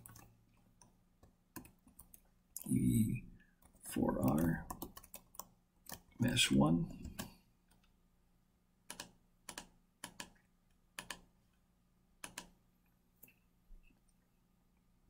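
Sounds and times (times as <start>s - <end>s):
mouse and keyboard clicks: 8.9s - 10.4s, 11.0s - 11.2s, 12.2s - 12.5s.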